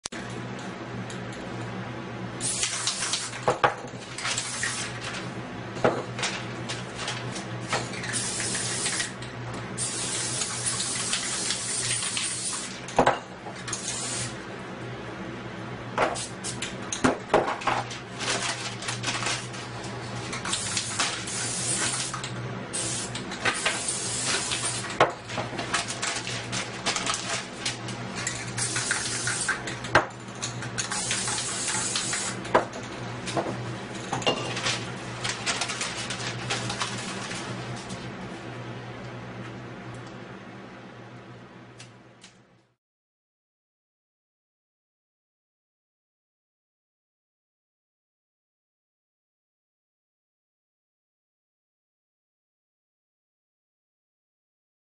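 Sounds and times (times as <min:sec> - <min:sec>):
spray paint can hissing: 0:02.4 - 0:03.4, 0:08.1 - 0:09.1, 0:09.8 - 0:12.7, 0:13.8 - 0:14.3, 0:20.5 - 0:25.0, 0:28.6 - 0:29.6, 0:30.8 - 0:32.4.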